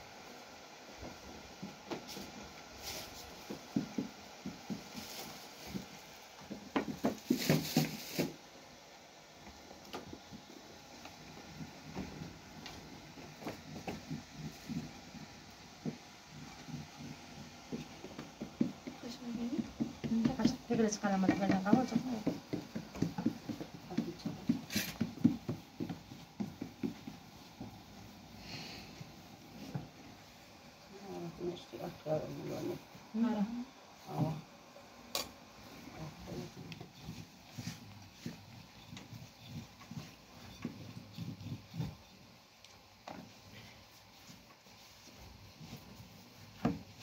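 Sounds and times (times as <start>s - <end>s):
hands patting dough: 9.5s - 34.5s, 35.2s - 47.0s.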